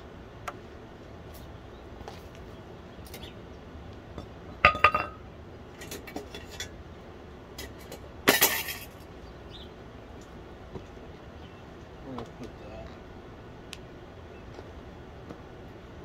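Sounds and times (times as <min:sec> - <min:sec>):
steel clanking on concrete: 0:04.6 - 0:05.2, 0:07.6 - 0:09.0.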